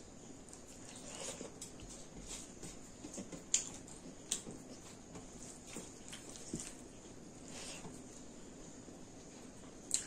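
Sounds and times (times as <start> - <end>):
chewing and wet mouth noises: 3.1 - 7.1, 9.6 - 10.0.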